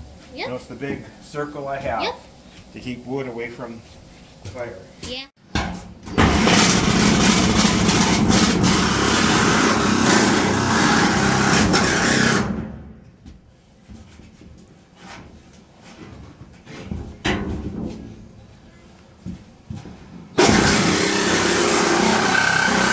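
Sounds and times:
jigsaw cutting metal sheet: 6.2 - 12.6, 20.4 - 22.9.

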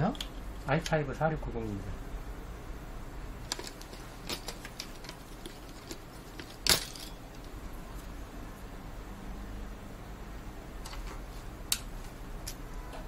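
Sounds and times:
hardware clicks and rattles: 3.4 - 7.6.

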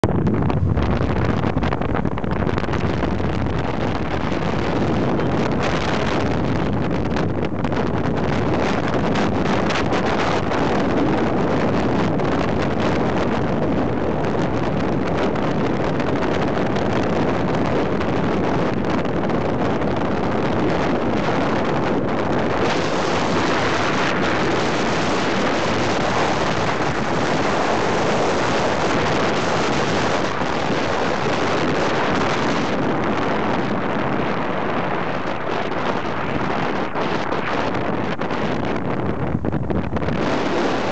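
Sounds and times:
wind rushing over microphone: 0.0 - 40.9.

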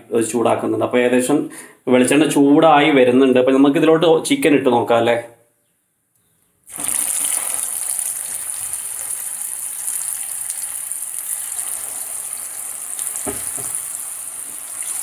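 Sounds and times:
oil sizzling and crackling: 6.7 - 15.0.

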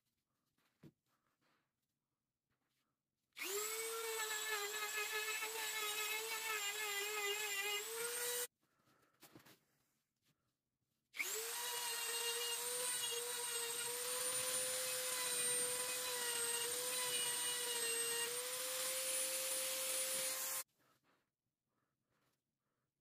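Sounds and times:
rotary tool high whine: 3.4 - 8.5, 11.2 - 20.6.

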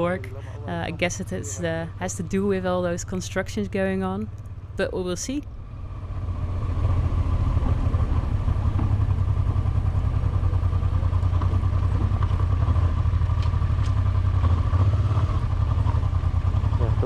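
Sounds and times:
motorcycle engine droning: 0.0 - 17.0.

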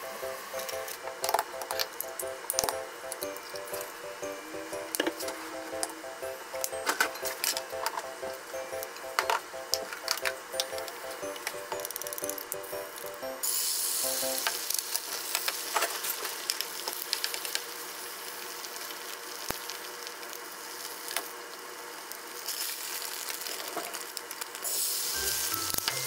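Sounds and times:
egg sizzling in frying pan: 6.3 - 26.0.

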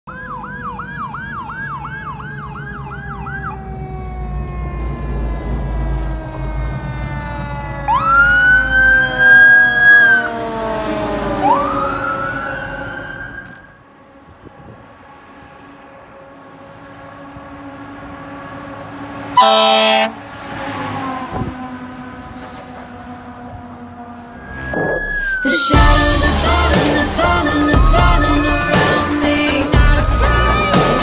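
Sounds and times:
siren yelp and wail: 0.1 - 13.8, 19.4 - 20.1, 21.0 - 29.4
truck engine rumble: 0.1 - 31.0.

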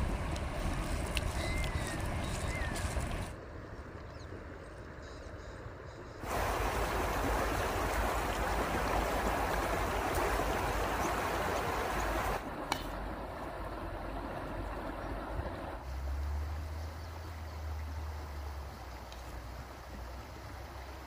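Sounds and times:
wind rumbling on microphone: 0.0 - 4.8, 6.2 - 15.8
river flowing: 6.2 - 21.0.

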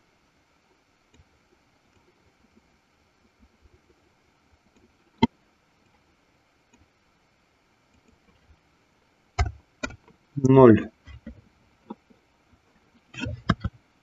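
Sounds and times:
faint room hiss: 0.0 - 14.0.

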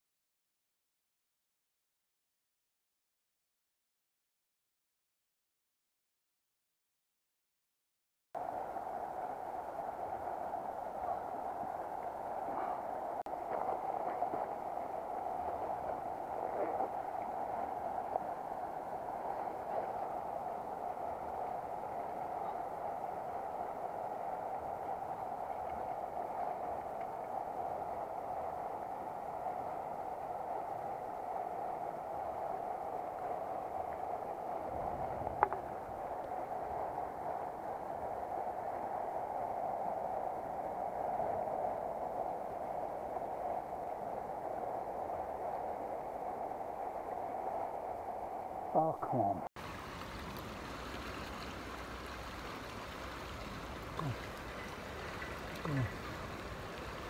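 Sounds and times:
river water over stones: 8.4 - 39.1, 49.6 - 57.0.

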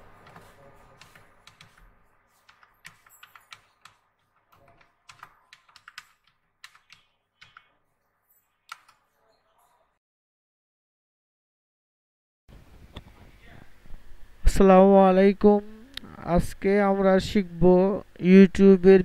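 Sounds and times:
computer keyboard typing: 0.0 - 7.8, 8.6 - 9.0.

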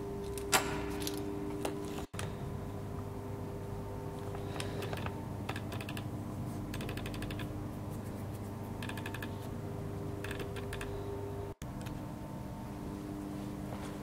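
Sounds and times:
rapid light ticking: 6.7 - 7.5, 8.7 - 9.5.

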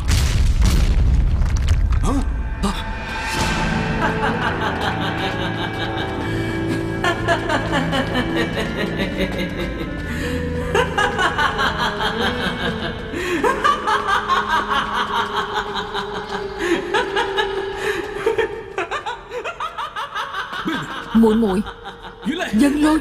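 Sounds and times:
dramatic background music: 0.0 - 23.0
person laughing: 10.7 - 22.9.

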